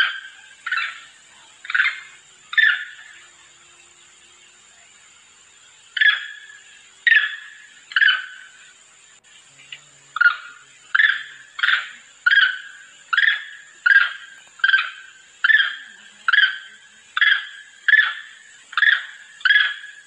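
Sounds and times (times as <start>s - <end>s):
monkey calls: 0.0s - 3.2s, 6.0s - 8.6s, 10.2s - 20.0s.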